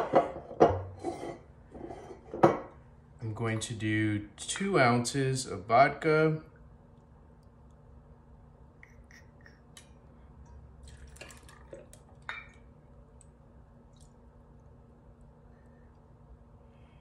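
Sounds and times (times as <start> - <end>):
liquid pouring into metal cup: 10.8 - 12.7.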